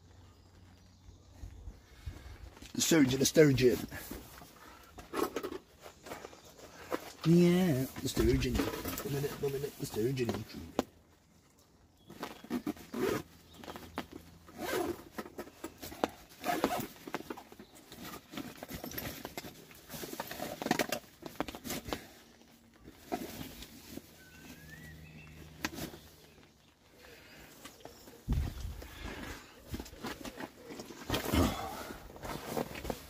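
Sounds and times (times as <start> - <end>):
padded jacket rustling: 12.1 - 15.1, 15.8 - 17.2.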